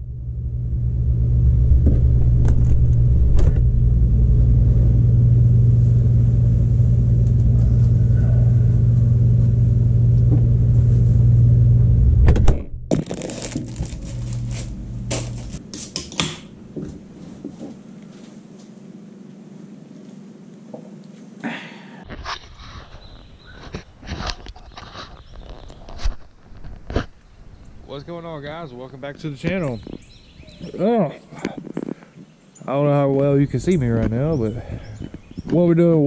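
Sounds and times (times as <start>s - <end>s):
microwave oven humming: 0.0s - 12.6s, 13.4s - 15.6s.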